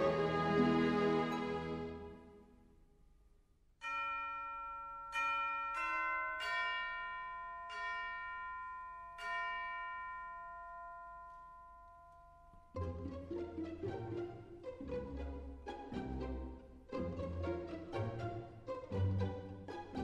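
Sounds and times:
bells ringing: 0:03.8 - 0:13.9.

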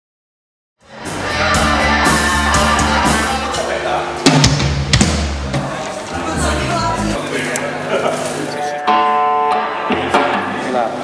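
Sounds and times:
band music with drum kit: 0:00.8 - 0:07.2, 0:08.8 - 0:11.0
sharp loud drum hits: 0:04.2 - 0:05.8.

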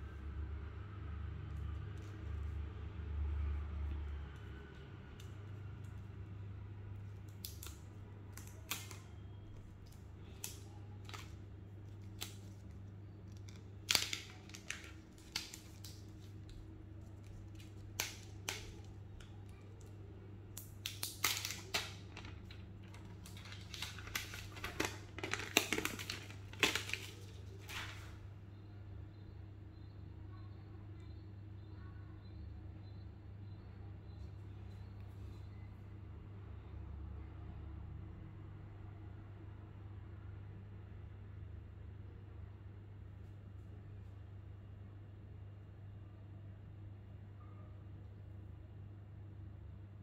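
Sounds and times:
smartphone and packaging handled: 0:04.3 - 0:28.3.

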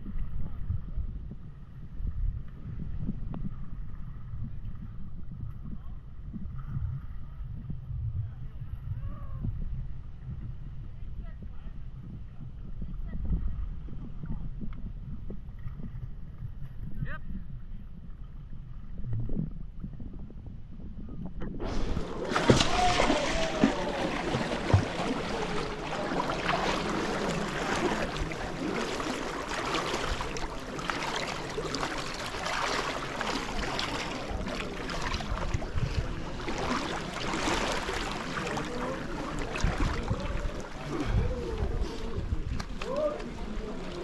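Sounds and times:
low muffled rumble: 0:00.0 - 0:44.0
river water rushing and splashing: 0:21.6 - 0:41.0.

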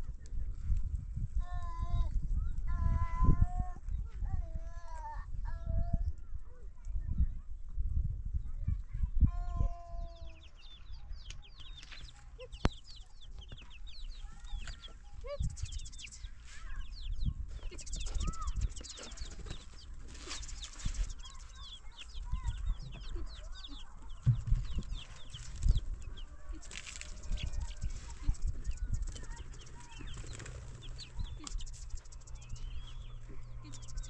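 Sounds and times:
birds chirping: 0:08.5 - 0:34.0
rustling noise: 0:11.6 - 0:33.5
low knocks: 0:24.2 - 0:25.0.

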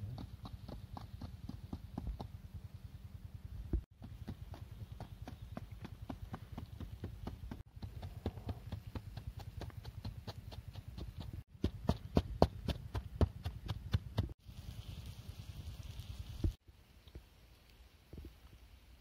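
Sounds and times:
pestle pounding in mortar: 0:04.0 - 0:14.4.

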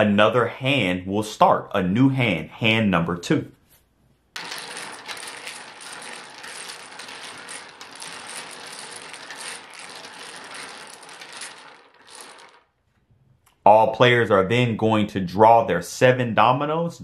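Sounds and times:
dominoes clattering on wooden table: 0:04.4 - 0:12.8.

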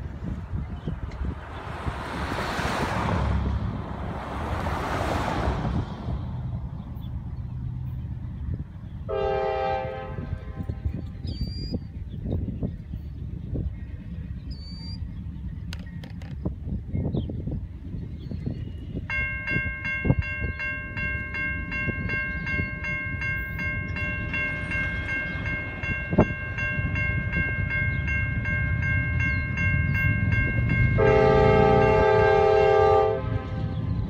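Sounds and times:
locomotive horn blast: 0:09.1 - 0:11.0, 0:30.2 - 0:34.0
railroad crossing bell ringing: 0:19.0 - 0:33.6.

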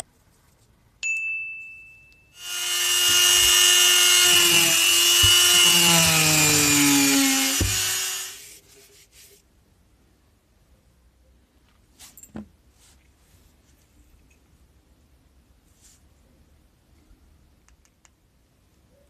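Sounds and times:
rotary tool cutting plastic pipe: 0:02.4 - 0:08.4.

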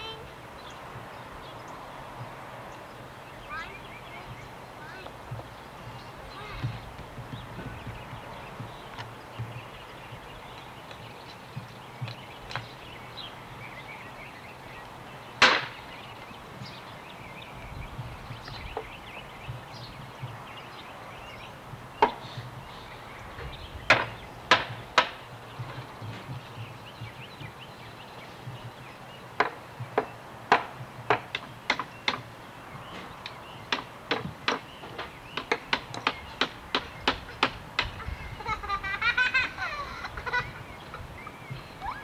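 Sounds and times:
hammers striking wood and nails: 0:15.4 - 0:15.8, 0:22.0 - 0:22.6, 0:23.9 - 0:27.3, 0:29.4 - 0:38.0.

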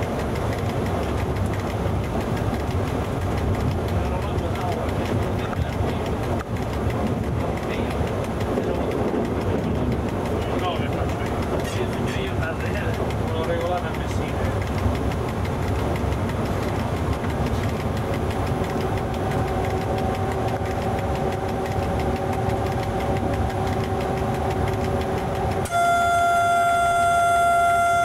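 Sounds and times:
train rumbling in motion: 0:00.0 - 0:28.0
steady tonal hum: 0:14.7 - 0:28.0
train horn: 0:25.6 - 0:28.0.

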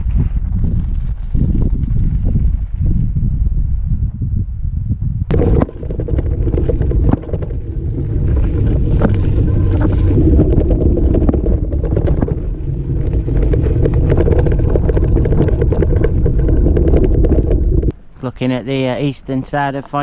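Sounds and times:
wind buffeting microphone: 0:00.0 - 0:18.0
bike rattling and knocking: 0:05.3 - 0:17.9
tyres rumbling over stones: 0:05.3 - 0:17.9.

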